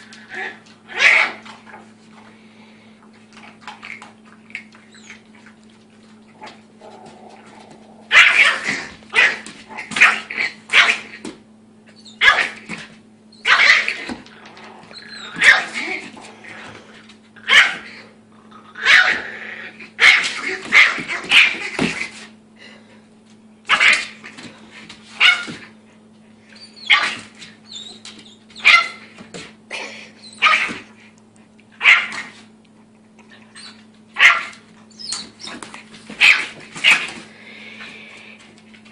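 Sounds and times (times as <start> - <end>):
dog barking: 31.8 - 32.1, 34.2 - 34.6.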